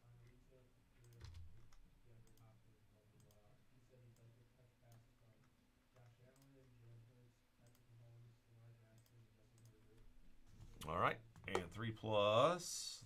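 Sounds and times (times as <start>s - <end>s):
computer mouse clicks: 1.0s - 2.5s, 3.2s - 3.5s, 6.0s - 6.8s, 7.6s - 7.9s, 9.0s - 9.8s.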